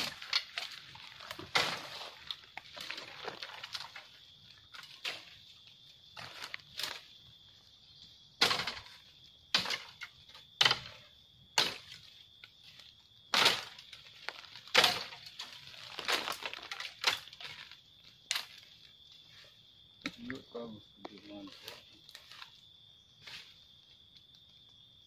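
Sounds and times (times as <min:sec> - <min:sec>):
twigs cracking: 0:00.0 - 0:05.4, 0:13.3 - 0:18.9
footsteps crunching on dry leaves: 0:15.6 - 0:16.8.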